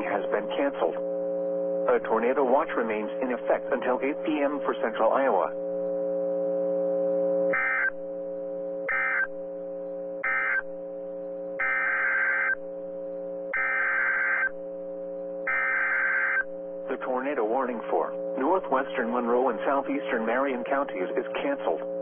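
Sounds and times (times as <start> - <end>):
steady low buzz: 0.0 - 22.0
screechy data bursts: 7.5 - 8.0, 8.9 - 9.4, 10.2 - 10.7, 11.6 - 12.6, 13.5 - 14.6, 15.4 - 16.5
shrill digital data chirps: 11.6 - 12.6, 13.6 - 14.5, 15.5 - 16.5.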